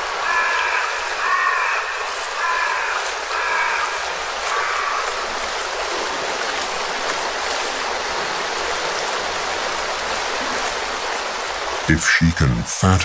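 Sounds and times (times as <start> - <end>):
stream water rushing: 0.0 - 13.0.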